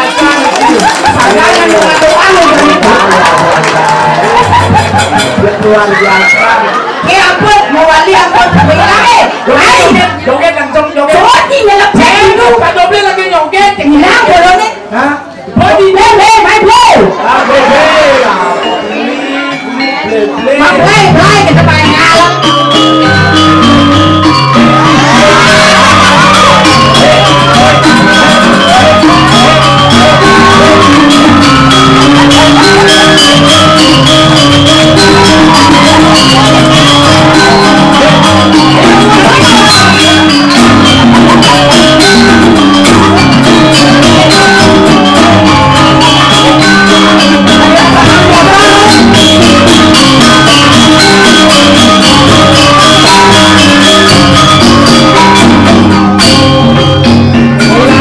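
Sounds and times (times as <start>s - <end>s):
people shouting: 0.0s - 7.2s, 24.3s - 56.1s
gamelan music: 0.0s - 10.4s, 16.0s - 58.0s.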